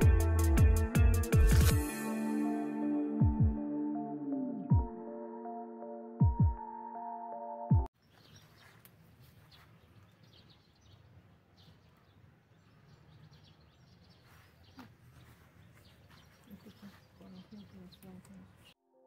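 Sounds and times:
electronic music with deep bass: 0.0s - 7.9s
small birds chirping: 8.0s - 18.8s.

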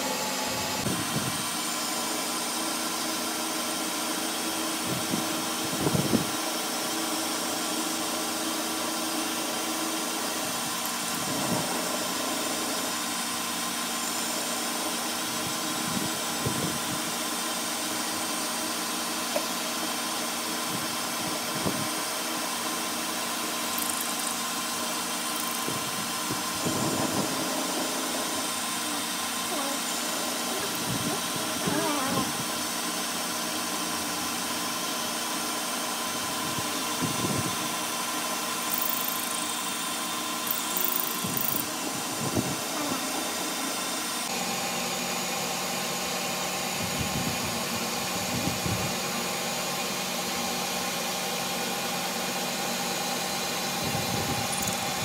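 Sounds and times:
lathe tool cutting metal: 0.0s - 31.7s
metal lathe motor hum: 0.0s - 46.8s, 48.9s - 55.0s.

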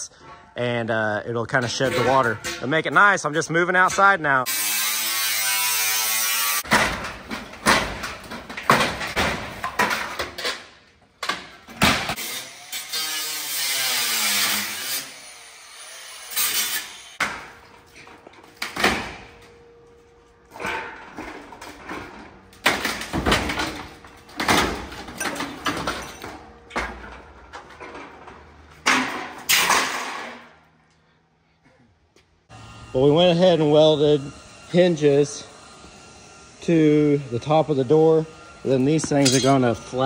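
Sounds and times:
power tool on sheet steel: 4.5s - 6.7s, 12.2s - 17.2s
steel panels knocking and rattling: 6.7s - 12.0s.

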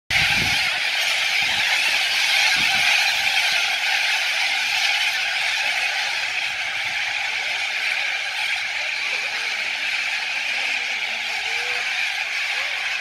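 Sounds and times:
cockatoos screeching: 0.1s - 13.0s.

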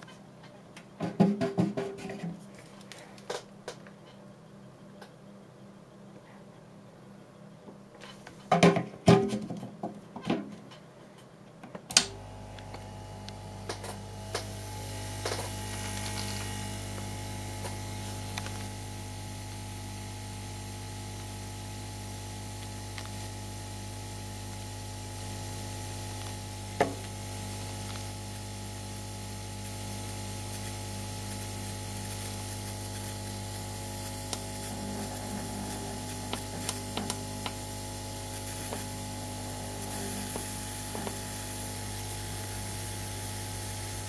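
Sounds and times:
hot-air station hum: 10.2s - 44.0s.

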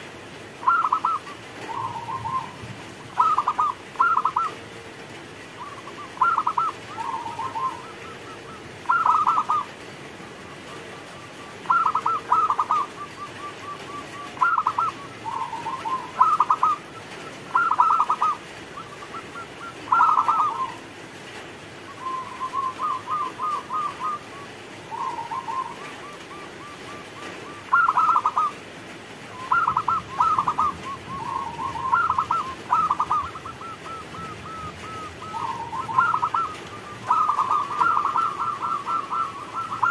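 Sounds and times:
dove cooing: 0.6s - 4.8s, 5.4s - 21.0s, 21.8s - 28.6s, 29.3s - 39.9s.

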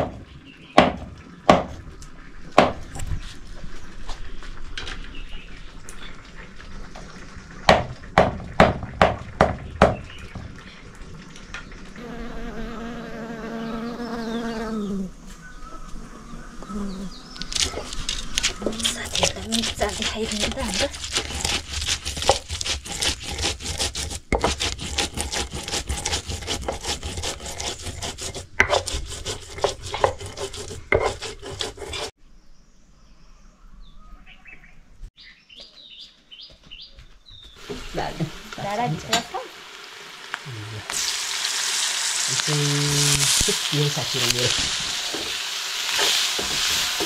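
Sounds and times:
food crackling in a pan: 37.6s - 47.0s
hiss of sizzling: 37.6s - 47.0s.

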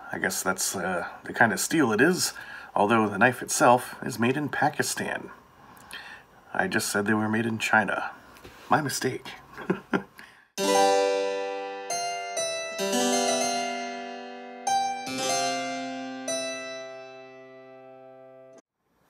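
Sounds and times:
keyboard chords ringing: 10.6s - 18.6s.

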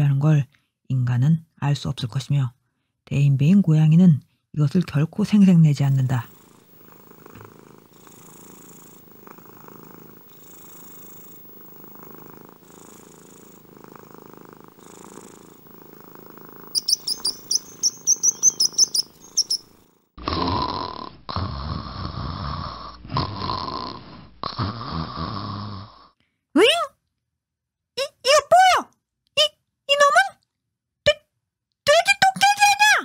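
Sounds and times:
cat purring: 5.7s - 26.0s
small birds chirping: 5.9s - 20.0s
cat sleep breathing: 5.9s - 26.2s.

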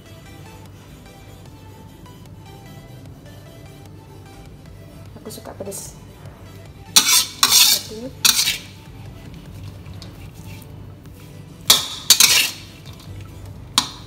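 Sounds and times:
metal spatula scraping wok: 6.9s - 8.8s, 9.5s - 10.8s, 11.7s - 13.1s.

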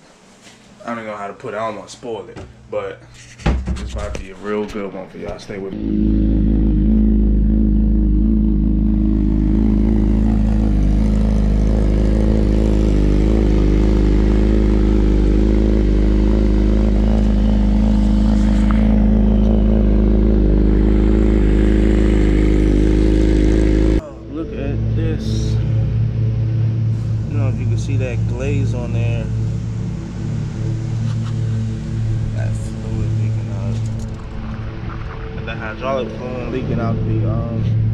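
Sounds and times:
motorcycle engine idling: 5.8s - 24.0s.

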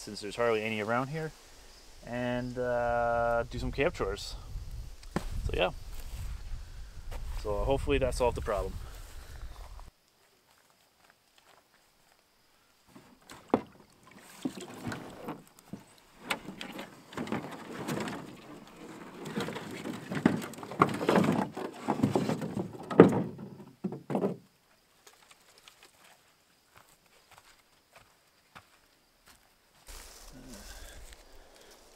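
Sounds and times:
brushwood rustling: 0.0s - 7.6s, 12.8s - 31.9s
sticks knocking against canoe hull: 19.8s - 24.4s.

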